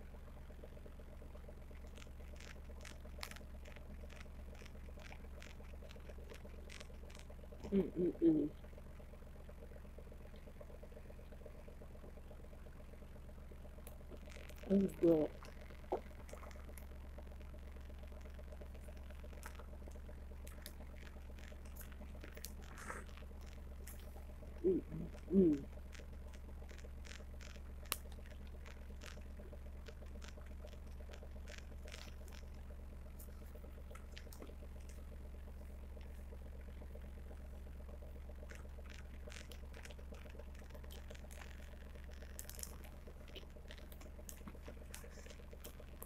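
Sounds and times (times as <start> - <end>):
steady low hum: 0.0 - 46.0
person chewing crunchy food: 1.7 - 7.8, 18.1 - 35.1, 38.4 - 46.0.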